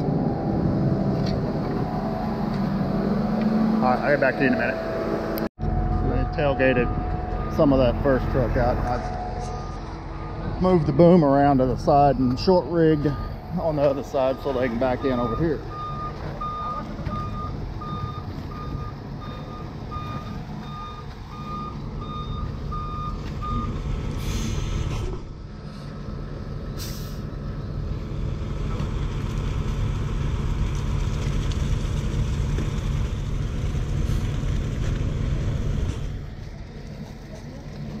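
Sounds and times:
diesel engine idling: 0.0 - 38.0
reversing alarm beeping: 0.1 - 23.8
air brake hisses: 24.2 - 25.0, 26.8 - 27.3.

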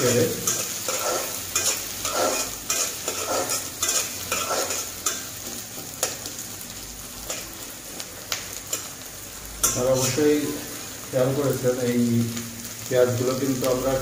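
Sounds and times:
metal spatula scraping pan: 0.0 - 5.3
onions sizzling in hot oil: 0.0 - 14.0.

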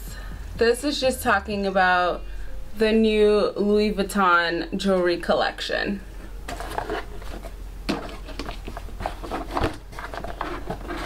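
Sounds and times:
cardboard and paper rustling: 6.2 - 11.0.

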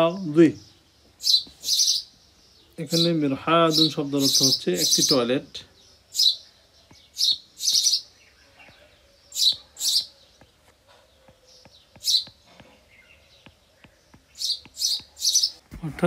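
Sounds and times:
bird chirping: 0.0 - 16.0
stylus tapping on a screen: 9.4 - 12.8, 13.4 - 15.4.

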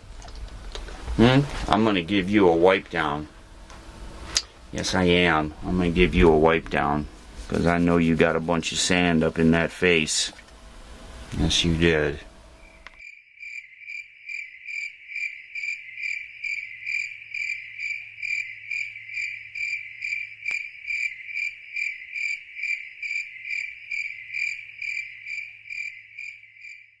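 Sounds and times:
cricket-like chirping trill: 12.5 - 27.0
faint click: 12.8 - 13.0.

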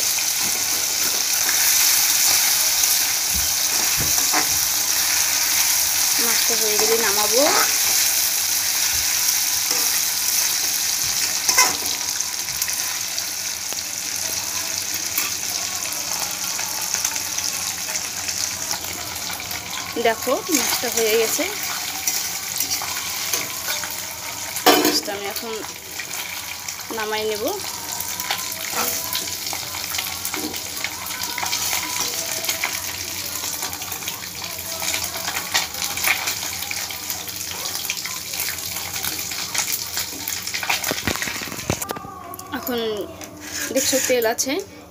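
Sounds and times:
fish frying in hot oil: 0.0 - 41.9
spatula scraping pan: 43.2 - 44.4.

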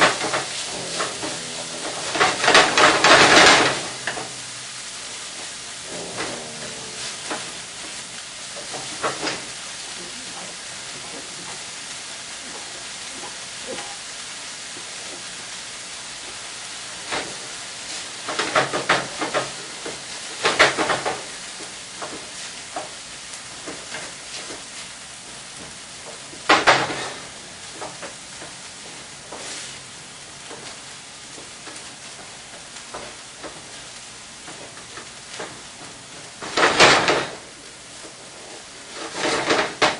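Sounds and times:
utensil scraping a pan: 0.0 - 4.6, 5.2 - 9.6, 29.3 - 29.9, 38.2 - 39.9
food sizzling in a frying pan: 0.0 - 39.9.

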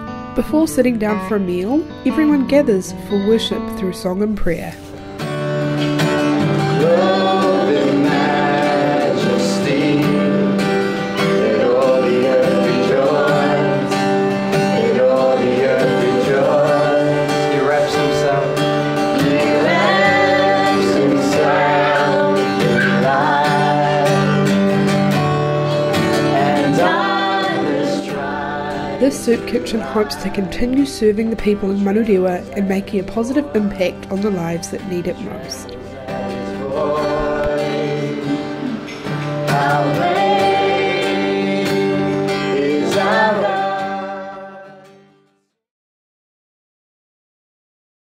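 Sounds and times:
strummed acoustic guitar: 0.0 - 45.4
man and woman singing: 6.5 - 24.9, 26.1 - 34.2, 35.2 - 44.9.

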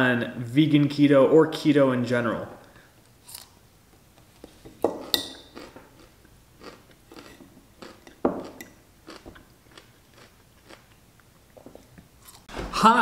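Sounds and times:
person biting and chewing pickle: 3.2 - 3.6, 4.9 - 12.5.

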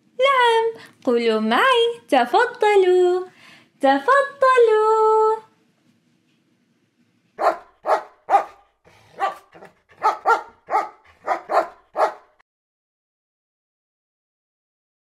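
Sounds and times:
dogs barking: 7.4 - 12.4.

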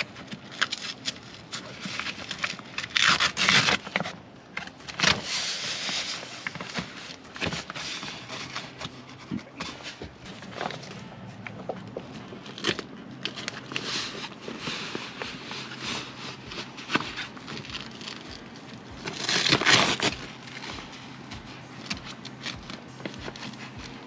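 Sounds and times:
velcro ripping: 0.6 - 4.1.

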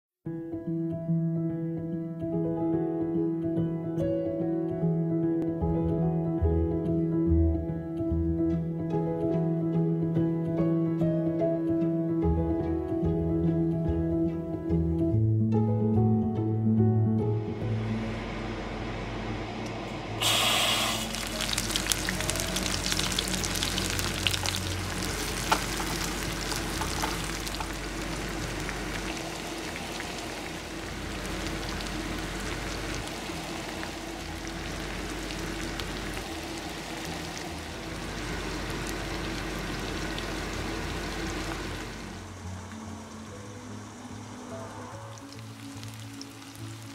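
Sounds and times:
vegetables sizzling in hot oil: 20.2 - 44.0, 45.1 - 46.9.

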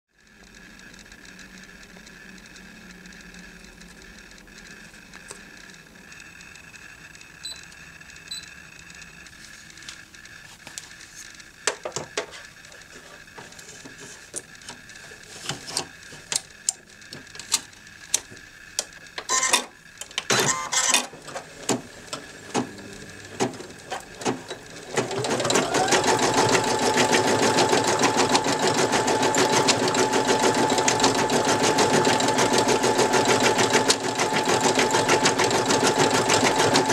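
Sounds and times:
embroidery machine stitching: 11.6 - 36.9.

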